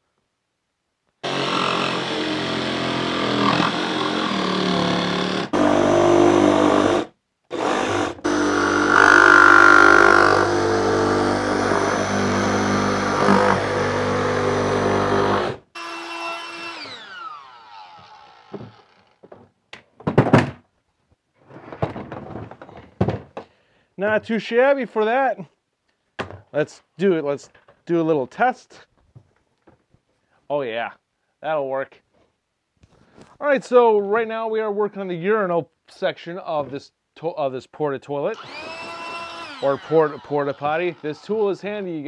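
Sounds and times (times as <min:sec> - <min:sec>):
jigsaw cutting plastic: 0:01.2 - 0:19.2, 0:38.3 - 0:41.8.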